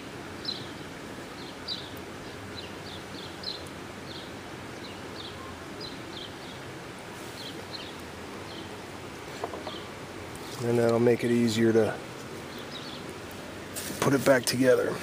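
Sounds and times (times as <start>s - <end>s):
low outdoor background rumble: 0.0s - 15.0s
small bird chirping: 0.4s - 6.6s, 7.2s - 10.7s, 12.4s - 13.2s.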